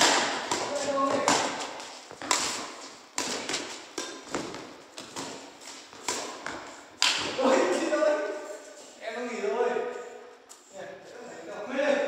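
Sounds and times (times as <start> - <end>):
rackets hitting shuttlecock: 0.0 - 7.6.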